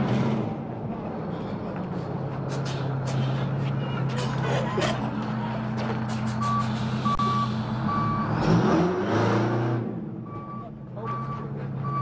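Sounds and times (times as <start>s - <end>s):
idling engine hum: 0.0s - 8.4s
vehicle backup alarm beeping: 6.4s - 8.4s, 10.2s - 12.0s.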